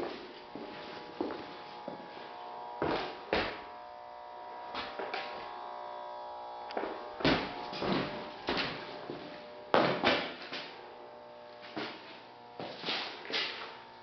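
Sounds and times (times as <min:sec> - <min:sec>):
footsteps on concrete: 0:00.0 - 0:03.7, 0:04.7 - 0:05.6, 0:06.7 - 0:10.8, 0:11.6 - 0:13.8
steady hum: 0:00.0 - 0:14.0.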